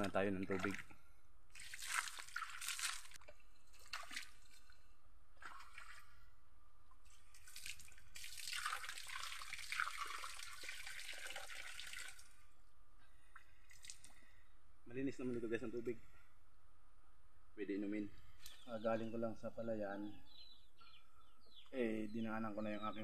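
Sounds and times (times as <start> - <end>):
water splashing into a cup: 0.0 - 4.7, 5.4 - 6.2, 7.0 - 12.4, 13.3 - 14.2.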